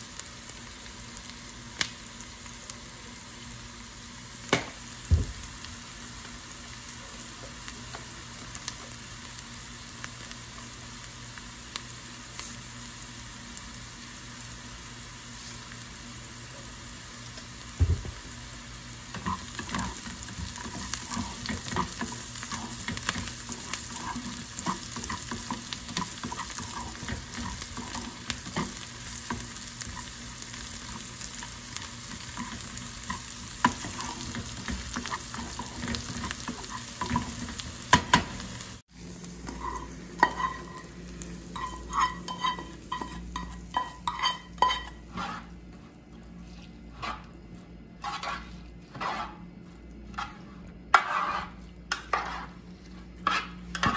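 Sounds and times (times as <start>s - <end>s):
onions sizzling in oil: 0.0s - 45.6s
spatula scraping a pan: 19.1s - 30.2s, 30.9s - 37.6s, 39.4s - 40.9s, 41.5s - 45.6s, 46.4s - 47.4s, 48.0s - 49.5s, 50.1s - 53.9s.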